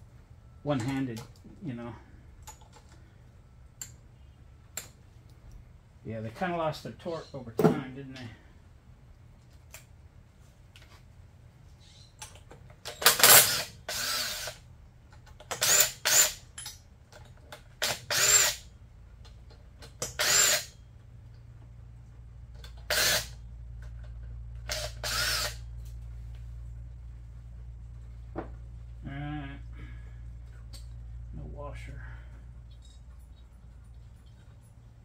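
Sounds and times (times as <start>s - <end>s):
cordless power tool spinning: 13.0s - 14.6s, 17.8s - 18.6s, 20.2s - 20.8s, 22.8s - 23.4s, 24.6s - 25.7s.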